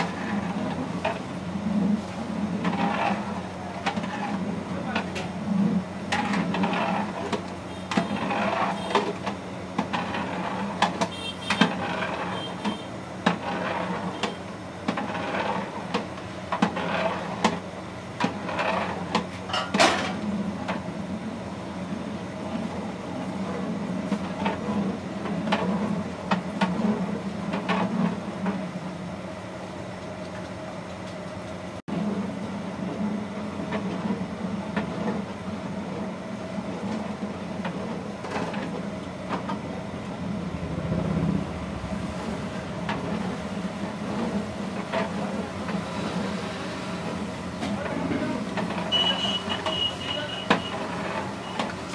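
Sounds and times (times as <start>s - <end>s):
steady low hum: 38.0s - 48.5s.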